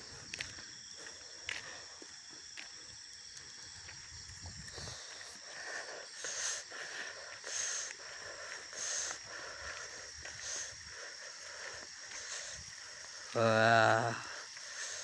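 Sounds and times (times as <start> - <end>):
night insects chirring: 0.0 - 15.0.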